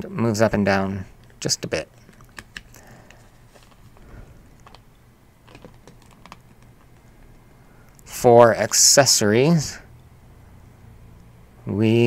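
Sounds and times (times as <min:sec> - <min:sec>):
plastic clicks and taps: 0:02.1 - 0:03.8.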